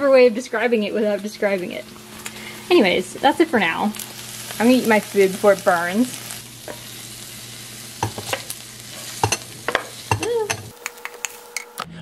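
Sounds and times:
food sizzling in a skillet: 0.1 - 12.0
spatula knocking on pan: 8.0 - 8.5, 9.2 - 10.7.

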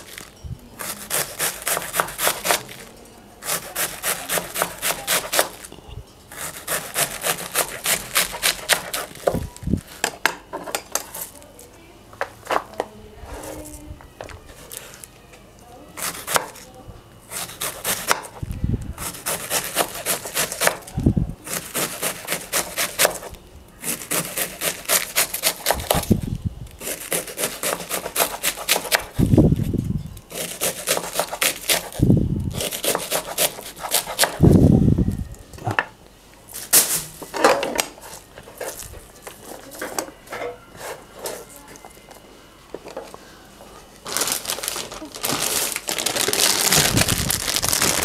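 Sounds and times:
knife shredding cabbage: 0.0 - 5.7, 6.3 - 10.1, 16.0 - 16.6, 17.3 - 18.4, 19.0 - 29.7, 30.3 - 34.6.

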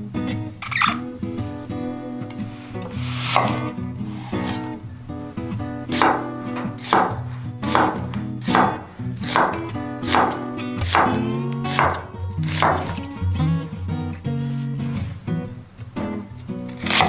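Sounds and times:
soft background music: 0.0 - 17.0
knife slicing onto wooden board: 3.0 - 4.7, 16.8 - 17.0.

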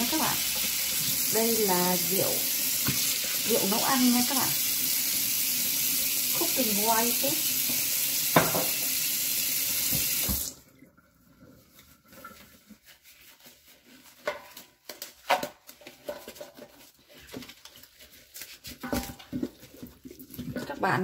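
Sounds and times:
tap running into steel sink: 7.6 - 8.9, 9.8 - 10.5
knocks in sink: 8.3 - 8.8.

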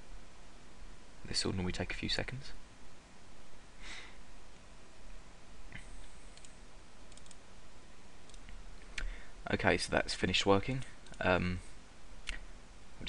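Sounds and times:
microphone hiss: 0.0 - 13.0
computer mouse clicks: 5.7 - 7.4, 8.3 - 9.1.

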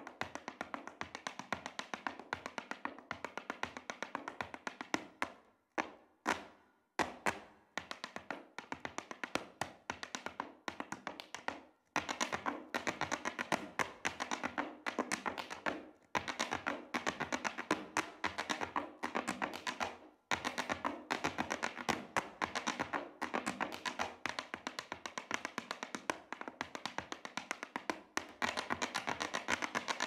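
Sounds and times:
hard shoes tapping on stage: 0.0 - 30.0.

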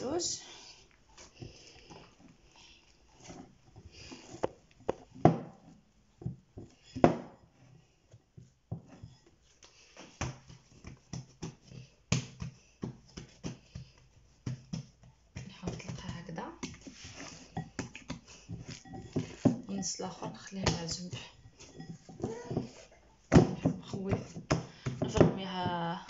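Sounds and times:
hands slapping dough: 8.3 - 19.7, 20.4 - 26.0.

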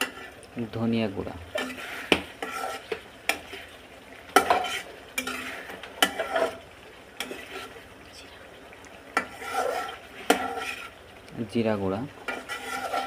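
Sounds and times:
metal spatula scraping a pan: 0.0 - 0.4, 1.5 - 7.8, 9.1 - 11.0, 12.2 - 13.0
spatula knocking against pan: 2.1 - 2.3.

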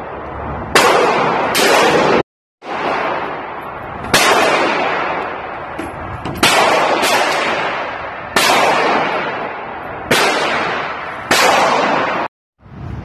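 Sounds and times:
gunshots echoing indoors: 0.7 - 12.3.

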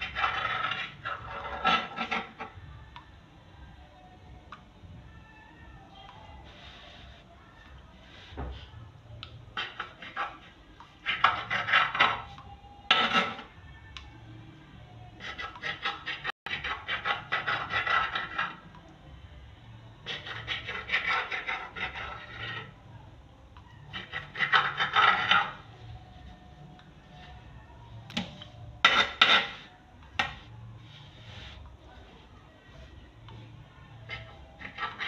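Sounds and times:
knife scraping dough on table: 0.0 - 2.6, 9.6 - 13.5, 15.2 - 18.6, 20.0 - 22.8, 23.9 - 25.7, 28.2 - 31.7, 34.1 - 35.0.

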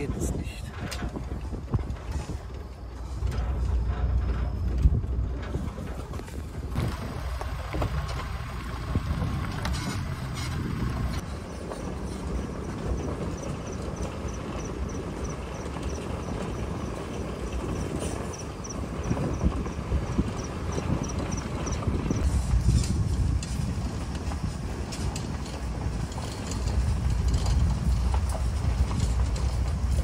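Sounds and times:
knocks and rattles: 0.0 - 30.0
vehicle engine and tyres rumbling: 0.0 - 30.0.

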